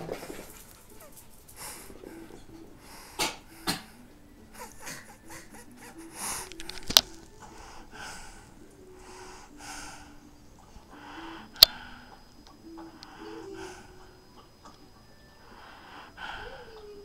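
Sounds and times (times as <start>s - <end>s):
dog breathing noisily: 0.0s - 14.6s, 15.4s - 17.0s
sharp clicks: 6.3s - 7.6s, 11.2s - 13.4s.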